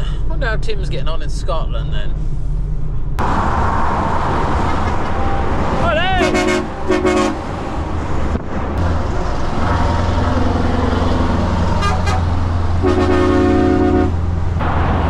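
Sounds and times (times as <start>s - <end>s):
truck engine droning: 0.0s - 15.0s
lorry air horn blasts: 6.2s - 7.5s, 12.8s - 14.2s.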